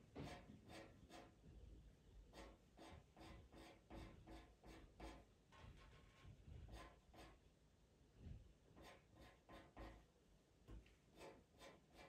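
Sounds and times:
pastel pencil scratching on paper: 0.2s - 1.3s, 2.3s - 5.2s, 6.7s - 7.4s, 8.8s - 10.0s, 11.1s - 12.0s.

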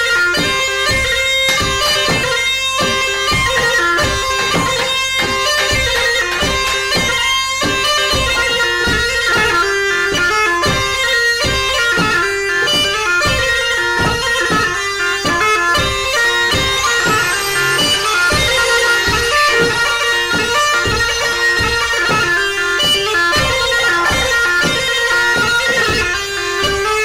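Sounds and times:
shrill wind instrument melody: 0.0s - 27.0s
steady drum beat: 0.1s - 27.0s.

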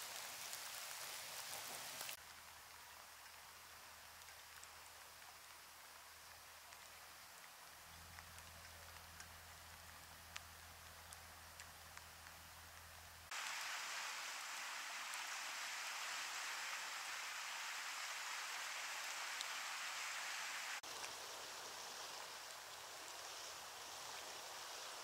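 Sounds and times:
rain falling: 0.0s - 25.0s
faint low hum: 2.2s - 16.8s.

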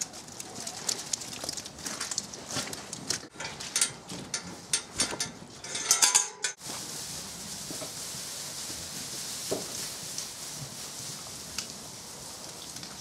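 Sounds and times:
metal gate clanking and rattling: 3.3s - 6.6s
ringing metal clangs: 3.4s - 6.6s
lambs rustling in straw: 6.6s - 13.0s.

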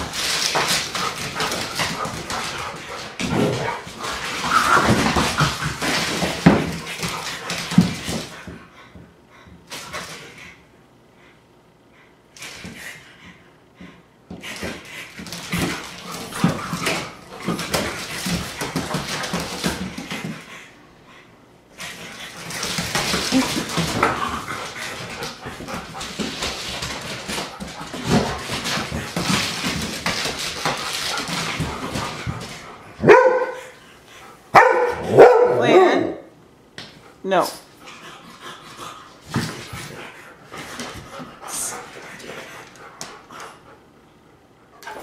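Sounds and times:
dogs play-fighting: 0.0s - 45.0s
dog barking loudly: 33.0s - 33.6s, 34.5s - 36.2s.

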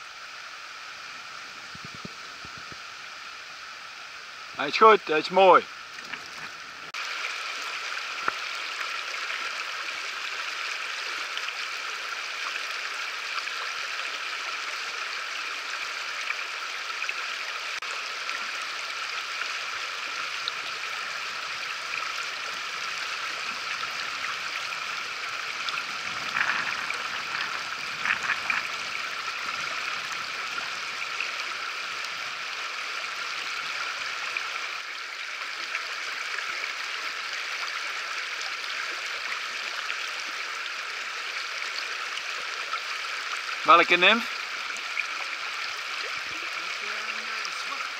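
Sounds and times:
river rapids rushing: 21.4s - 32.4s.

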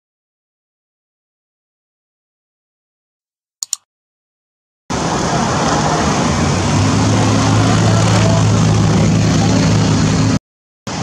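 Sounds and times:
cursor double click: 3.6s - 3.8s
loud outdoor noise: 4.9s - 11.0s.

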